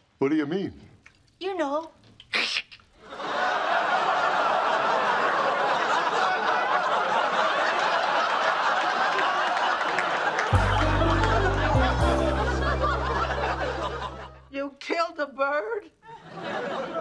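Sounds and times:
studio audience laughing: 0:03.0 - 0:14.5, 0:16.0 - 0:17.0
music with low bass line: 0:10.5 - 0:14.1.

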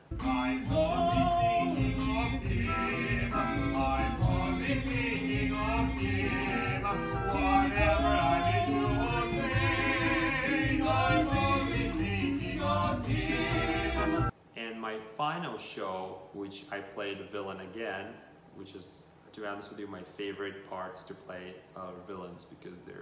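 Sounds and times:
instrumental accompaniment: 0:00.0 - 0:14.3
voices singing with vibrato: 0:00.0 - 0:14.3.

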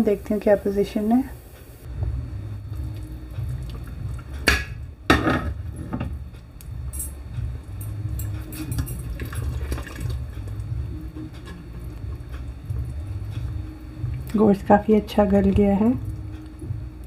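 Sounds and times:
steady low hum: 0:00.0 - 0:17.0
curry sloshing in pot: 0:08.7 - 0:10.8.

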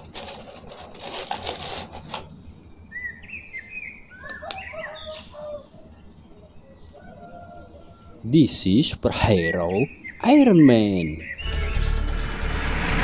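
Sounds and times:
plastic blister tray crinkling: 0:00.0 - 0:02.4.

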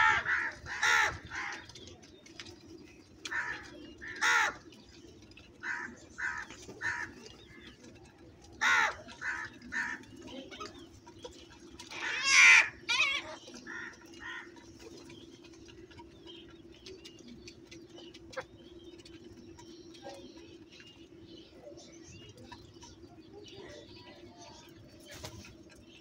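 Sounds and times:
crows cawing: 0:00.0 - 0:01.7, 0:03.3 - 0:04.7, 0:05.6 - 0:07.2, 0:08.6 - 0:10.0, 0:11.9 - 0:14.6
beaks pecking at grain in a dish: 0:00.0 - 0:26.0.

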